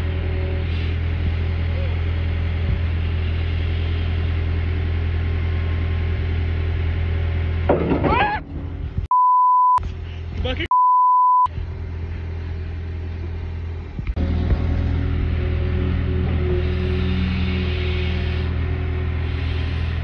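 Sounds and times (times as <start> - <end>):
diesel engine droning: 0.0 - 10.7, 11.3 - 20.0
censor bleeps: 9.1 - 9.8, 10.7 - 11.5.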